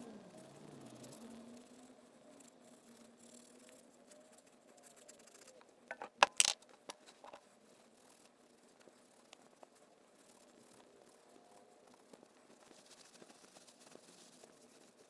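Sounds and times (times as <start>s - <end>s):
metallic clicks and knocks: 5.9s - 7.4s.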